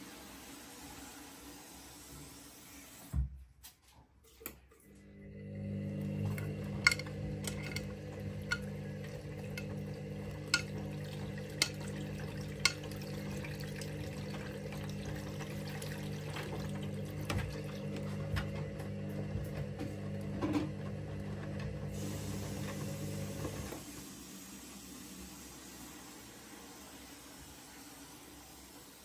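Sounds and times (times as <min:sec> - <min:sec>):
motor hum: 0:04.9 - 0:23.9
washing machine drum tumbling: 0:05.9 - 0:24.0
water sloshing: 0:06.0 - 0:18.6.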